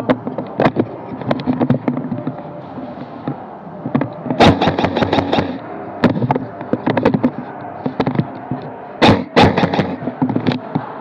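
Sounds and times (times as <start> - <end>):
airsoft guns firing: 4.4 - 5.6, 9.0 - 10.0.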